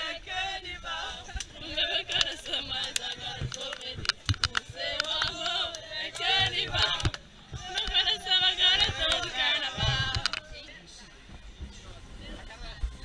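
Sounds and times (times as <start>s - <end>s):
group chanting: 0.0s - 10.7s.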